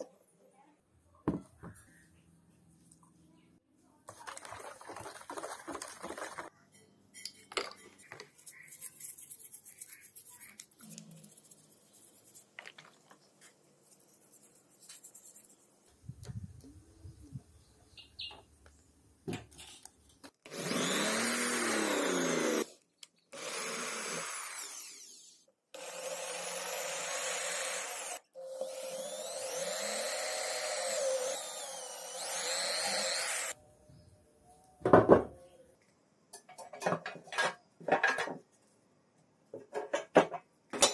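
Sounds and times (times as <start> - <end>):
small electric power tool running: 20.5 - 22.7, 23.4 - 33.6.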